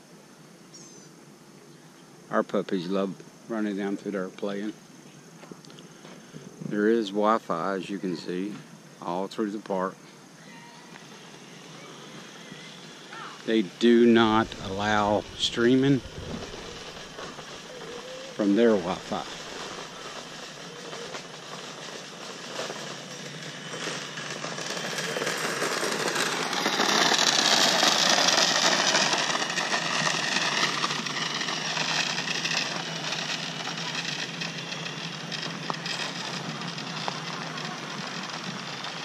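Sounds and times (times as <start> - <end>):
electric scooter motor whine: 10.4 - 39.0
tyres rolling on asphalt: 10.9 - 39.0.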